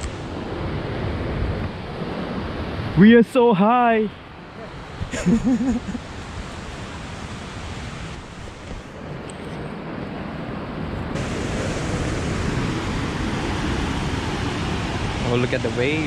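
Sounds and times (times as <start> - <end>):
ocean surf breaking: 0.0 - 16.0
wind on microphone: 4.7 - 16.0.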